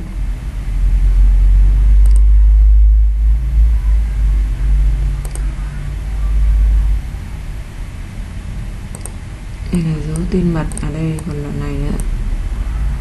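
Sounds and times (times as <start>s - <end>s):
deep loud rumble: 0.0s - 13.0s
computer mouse double-clicks: 2.0s - 2.3s, 5.2s - 5.5s, 8.9s - 9.2s.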